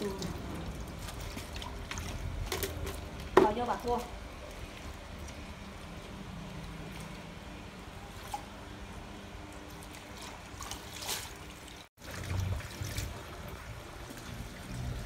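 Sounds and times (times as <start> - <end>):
water trickling: 0.0 - 15.0
hands splashing in water basin: 9.6 - 13.5.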